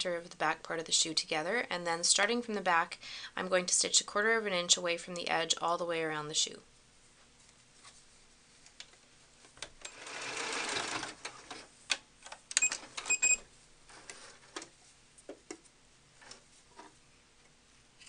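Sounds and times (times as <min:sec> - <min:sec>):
sewing machine stitching: 0:09.8 - 0:11.7.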